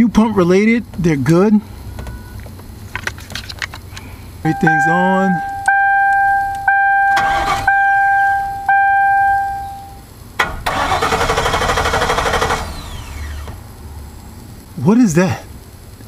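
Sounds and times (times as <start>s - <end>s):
car warning chime dinging: 4.4s - 10.1s.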